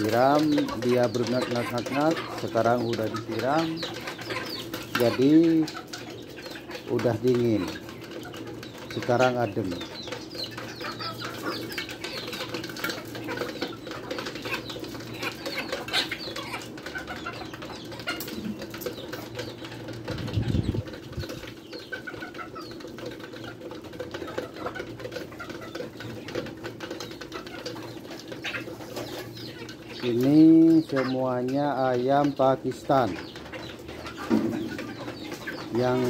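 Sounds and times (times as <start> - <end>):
chickens clucking and chirping: 0.0 - 36.0
chickens pecking on basin: 0.0 - 36.0
wings flapping: 9.6 - 30.3.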